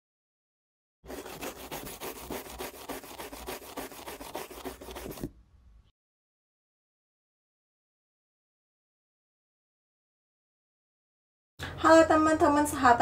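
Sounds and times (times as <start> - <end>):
marker scribbling on paper: 1.1 - 5.3.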